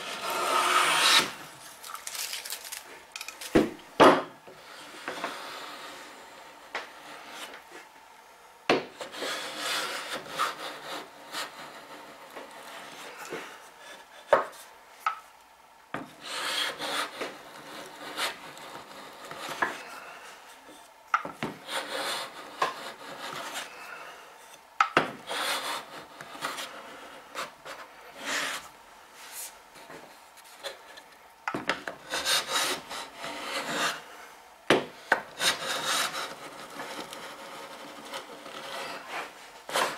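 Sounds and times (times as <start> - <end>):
hand plane rasping on wood: 0.0 - 1.4, 9.0 - 13.0, 16.2 - 19.8, 21.6 - 23.7, 25.2 - 28.7, 31.9 - 34.1, 35.2 - 39.9.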